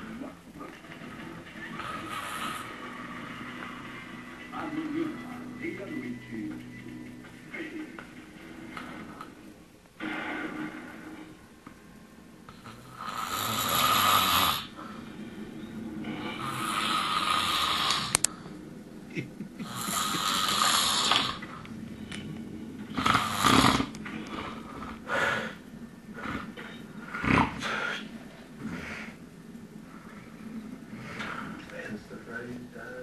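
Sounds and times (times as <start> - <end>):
man snoring: 1.7 - 2.9, 12.6 - 14.8, 16.0 - 18.2, 19.6 - 21.6, 22.9 - 25.6.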